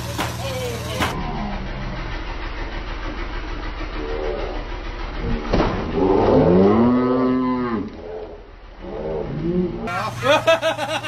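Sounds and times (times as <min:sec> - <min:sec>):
boat motor idling: 0:00.0 - 0:11.0.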